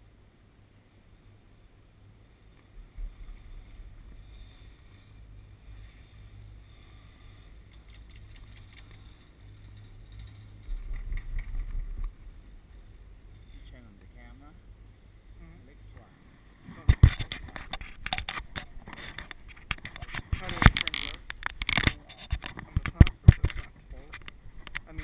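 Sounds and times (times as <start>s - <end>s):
wind rumble on microphone: 7.8s - 13.9s
scratchy clicks: 17.0s - 25.0s.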